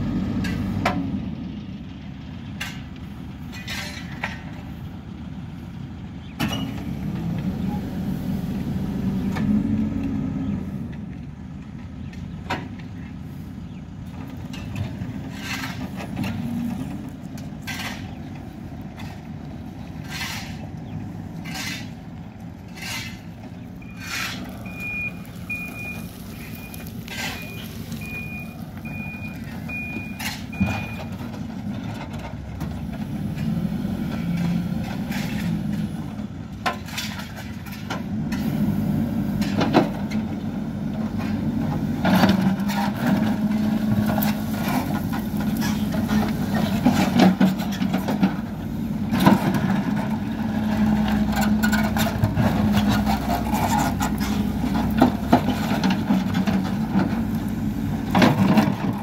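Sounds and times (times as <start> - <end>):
diesel engine under load: 0.0 - 59.0
beeping alarm: 24.7 - 31.1.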